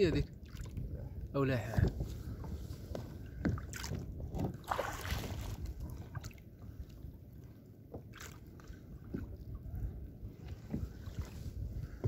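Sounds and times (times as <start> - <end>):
wind rumble on microphone: 0.0 - 7.5, 8.2 - 12.0
waves splashing against kayak: 1.6 - 6.9.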